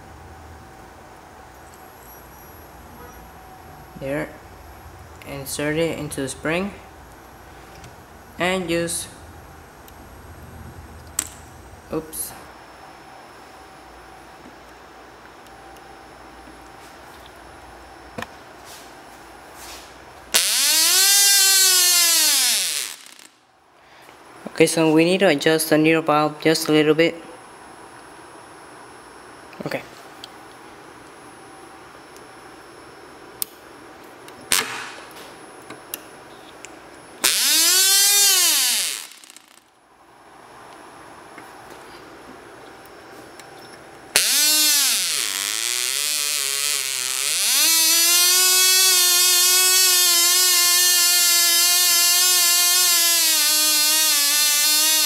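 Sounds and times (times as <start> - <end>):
electric starter spinning engine: 37.2 - 39.6, 44.2 - 55.0.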